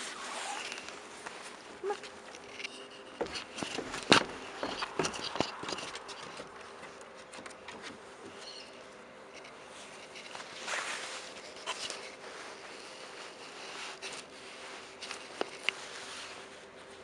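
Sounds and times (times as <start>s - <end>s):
camera handling knocks and rustles: 2.3s - 8.0s.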